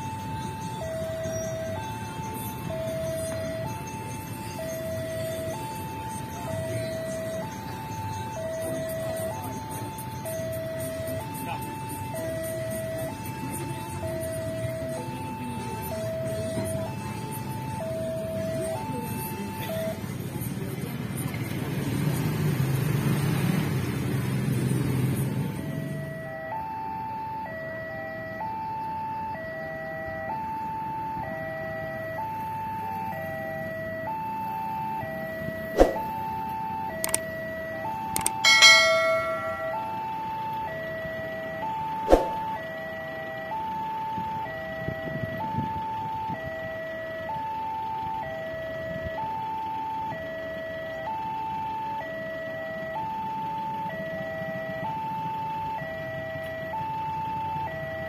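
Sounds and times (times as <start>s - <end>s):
level crossing two-tone alarm: 0.0s - 20.3s, 25.6s - 58.0s
sharp clicks: 37.0s - 37.3s, 38.1s - 38.4s.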